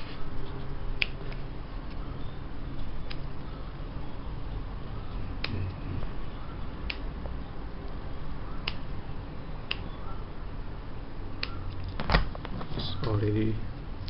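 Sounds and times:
steady low hum: 0:00.0 - 0:14.0
sharp clicks: 0:03.0 - 0:03.3, 0:08.6 - 0:08.9, 0:09.6 - 0:10.0, 0:11.4 - 0:12.0.

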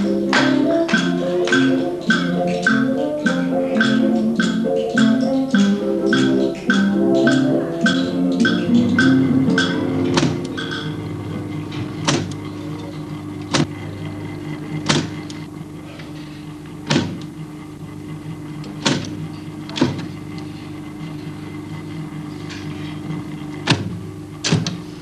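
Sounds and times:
electric typewriter humming: 0:00.0 - 0:25.0.

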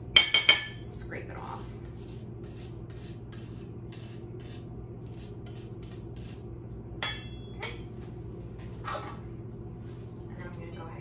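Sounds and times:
zester rasping on oranges: 0:01.4 - 0:06.5.

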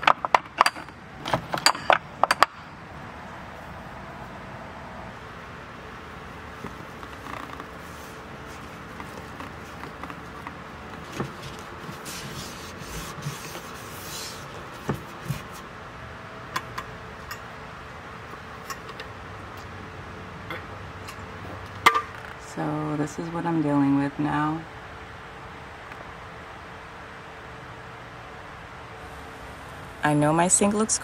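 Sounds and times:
steady background hum: 0:00.0 - 0:31.0
mirror being wiped: 0:07.7 - 0:10.3, 0:11.0 - 0:15.7.

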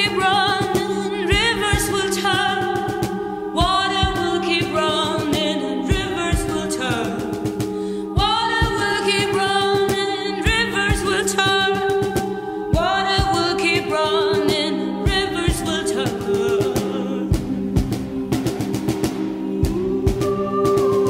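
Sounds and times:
layered voices singing: 0:00.0 - 0:21.0
steady low drone: 0:17.3 - 0:21.0.

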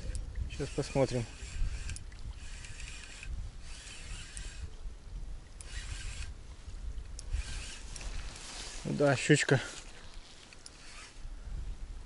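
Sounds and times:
fishing reel cranking: 0:00.0 - 0:04.8, 0:05.6 - 0:06.4, 0:07.1 - 0:08.2, 0:10.5 - 0:11.3
wind rumble on microphone: 0:00.0 - 0:09.0, 0:10.0 - 0:12.0.

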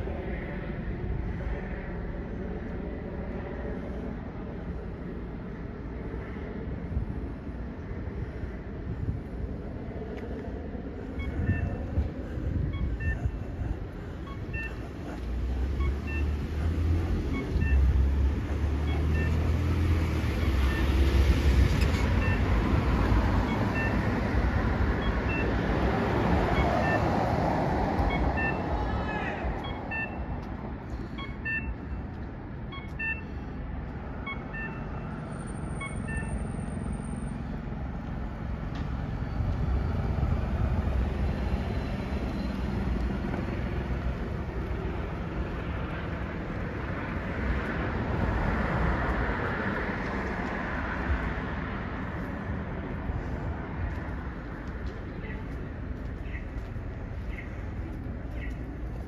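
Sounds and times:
vehicles driving past: 0:00.0 - 0:59.0
small electronic beep: 0:12.7 - 0:13.4, 0:14.3 - 0:14.8, 0:17.3 - 0:18.0, 0:18.8 - 0:19.5, 0:32.7 - 0:33.4, 0:34.2 - 0:36.8.

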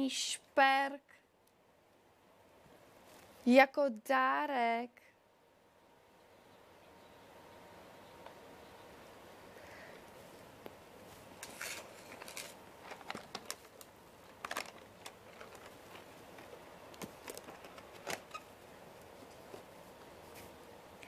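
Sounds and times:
low room hiss: 0:00.0 - 0:21.0
light handling clicks and rustles: 0:11.4 - 0:18.4.

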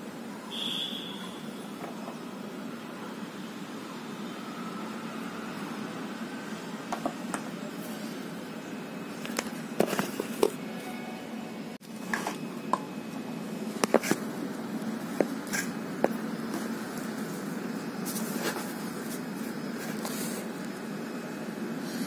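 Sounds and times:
steady low hum: 0:00.0 - 0:22.0
hands handling craft items: 0:09.2 - 0:10.6.

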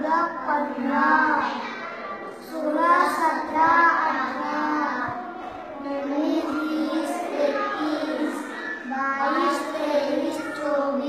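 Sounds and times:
child chanting in sing-song: 0:00.0 - 0:01.7, 0:05.8 - 0:11.0.

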